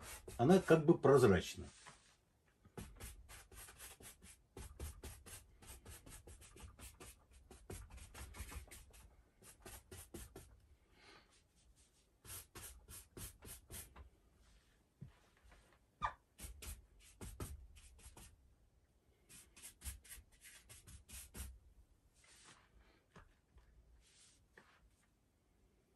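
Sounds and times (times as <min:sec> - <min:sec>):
brush rasping on canvas: 0:00.0 - 0:00.9, 0:02.8 - 0:10.5, 0:11.8 - 0:13.9, 0:16.4 - 0:18.3, 0:19.3 - 0:21.6.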